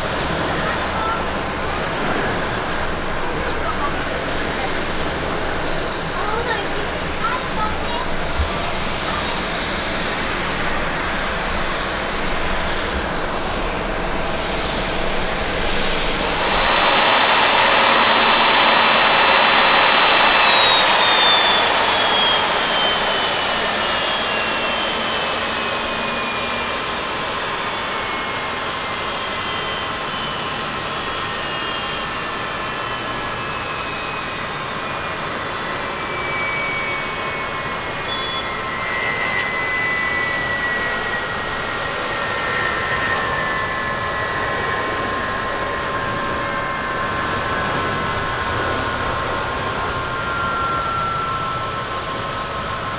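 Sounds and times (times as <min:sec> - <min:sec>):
jet engine high whine: 0:00.0 - 0:52.9
jet engines roaring: 0:00.0 - 0:52.9.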